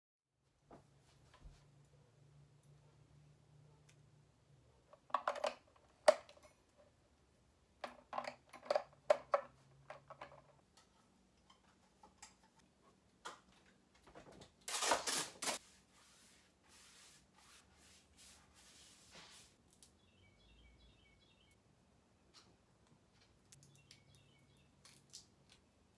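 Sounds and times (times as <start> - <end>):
tape ripping off roll: 14.6 - 15.6
soft hissing strokes: 15.6 - 19.6.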